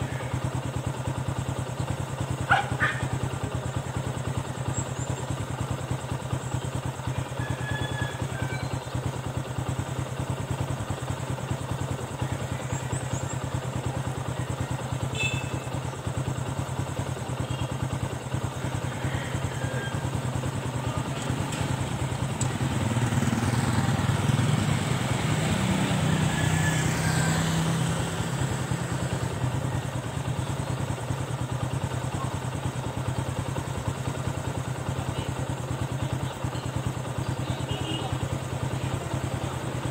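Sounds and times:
low engine hum: 0.0s - 39.9s
motor vehicle passing: 20.8s - 29.5s.

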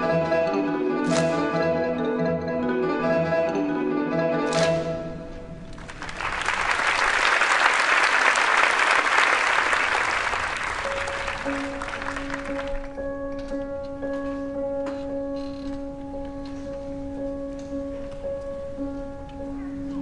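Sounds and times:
audience applauding: 5.7s - 13.0s
long held musical notes: 9.9s - 20.0s.

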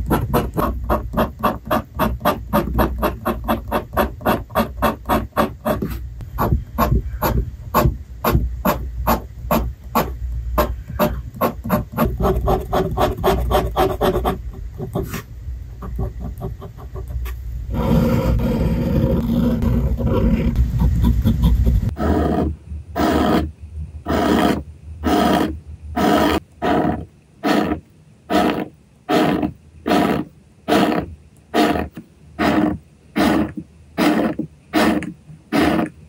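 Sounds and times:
pen nib scratching on paper: 0.0s - 22.4s.

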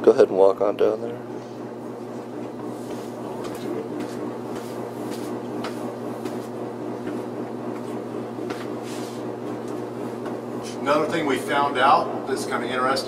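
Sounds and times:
steady low hum: 0.0s - 13.0s
faint footsteps: 2.1s - 10.4s.

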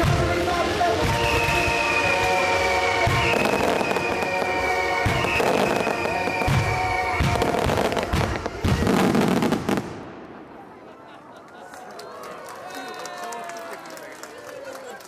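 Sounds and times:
fireworks bursting and crackling: 0.0s - 10.8s
show music: 0.0s - 10.8s.

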